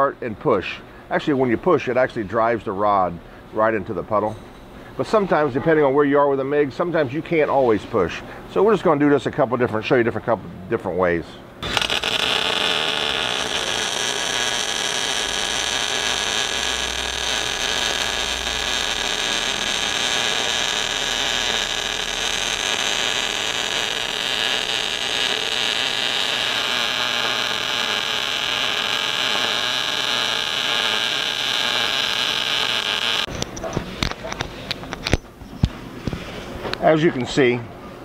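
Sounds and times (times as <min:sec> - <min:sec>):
welding arc hissing: 0:11.6 - 0:33.3.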